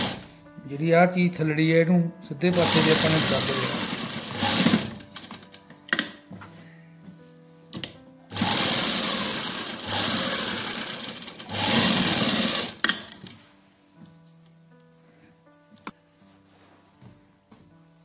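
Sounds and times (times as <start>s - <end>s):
sewing machine stitching: 0.0s - 0.2s, 2.5s - 5.4s, 8.3s - 13.2s
clicks of handling work: 7.7s - 8.0s.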